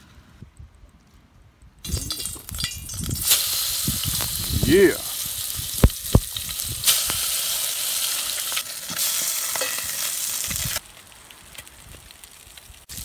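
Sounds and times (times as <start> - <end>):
fish sizzling in a pot: 2.0 - 10.9, 11.8 - 13.0.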